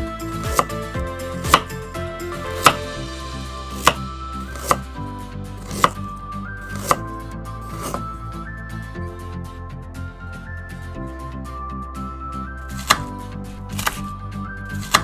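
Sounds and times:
knife chopping carrot on wooden board: 0.4 - 0.8, 1.4 - 1.8, 2.6 - 2.9, 3.7 - 4.9, 5.6 - 6.1, 6.7 - 7.0, 7.7 - 8.0, 12.8 - 13.1, 14.7 - 15.0.

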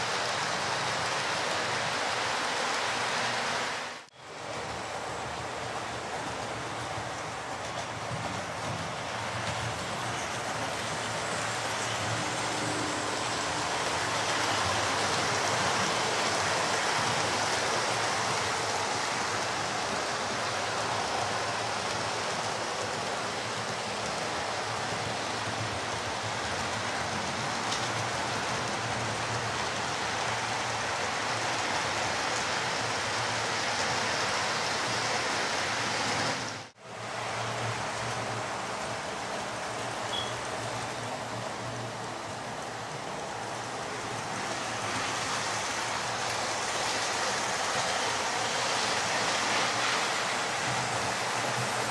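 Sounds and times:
model train whirring on track: 0.0 - 51.9.

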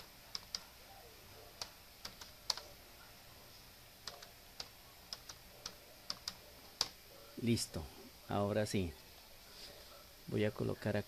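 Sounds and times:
computer keyboard keys clicking: 0.0 - 0.7, 1.6 - 2.7, 4.0 - 7.0.

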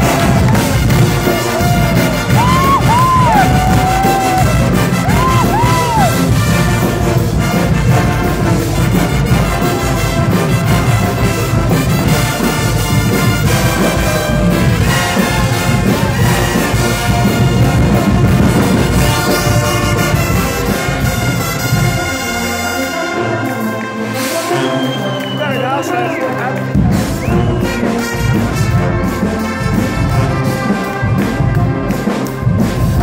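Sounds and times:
brass band playing loud: 0.0 - 33.0.

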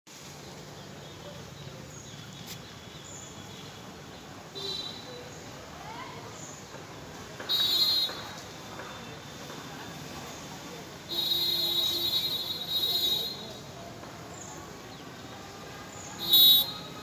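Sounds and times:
shrill bird call: 16.1 - 17.0.

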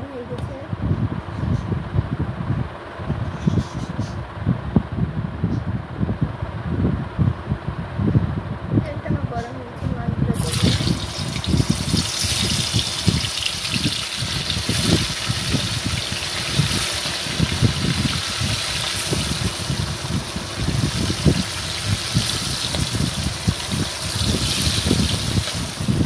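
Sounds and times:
low rumble: 0.0 - 26.0
fish sizzling in hot oil: 10.4 - 26.0
oil crackling: 10.4 - 26.0.

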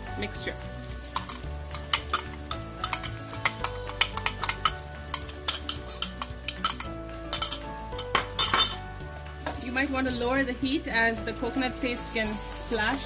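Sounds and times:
light sizzling: 0.0 - 13.0
metal spoon tapping glass bowl: 2.8 - 8.8.

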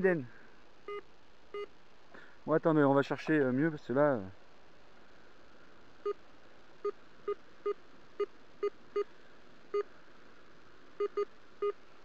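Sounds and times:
metal detector beeping: 11.0 - 11.8.

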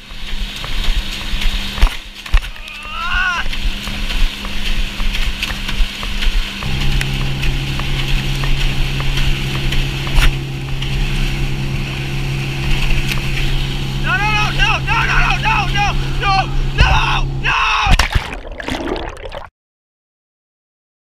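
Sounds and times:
boat engine running: 0.0 - 19.5
water rushing: 0.0 - 19.5.

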